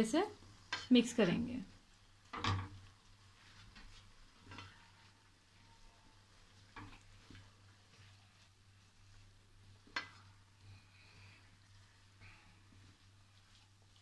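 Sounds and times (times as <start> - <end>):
spatula scraping and tapping a wok: 0.6 - 1.5, 2.2 - 8.6, 9.5 - 10.5.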